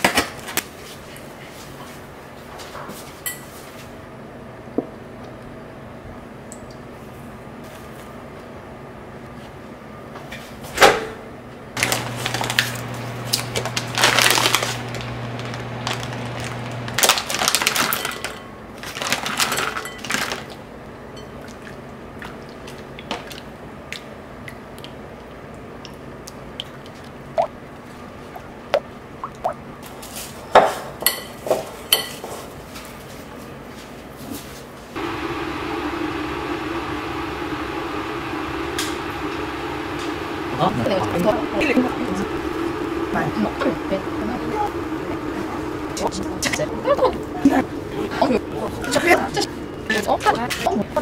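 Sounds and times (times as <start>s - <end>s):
cling film crackling: 11.8s - 17.8s
low steady hum: 35.0s - 51.0s.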